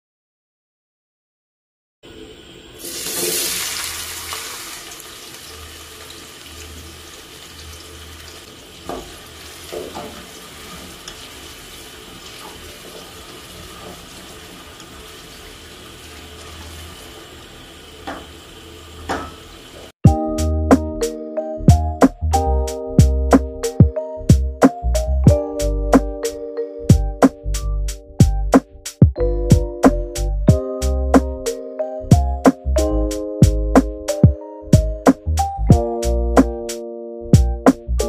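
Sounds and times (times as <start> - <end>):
onions sizzling in hot oil: 2.6 - 19.9
music: 20.0 - 38.0.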